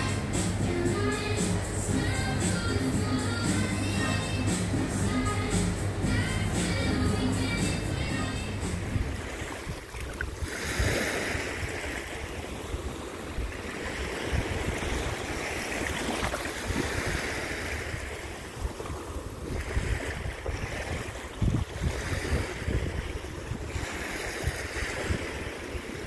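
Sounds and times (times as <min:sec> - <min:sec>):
sea waves washing over sand: 0:00.0 - 0:26.0
wind rumbling on microphone: 0:07.4 - 0:26.0.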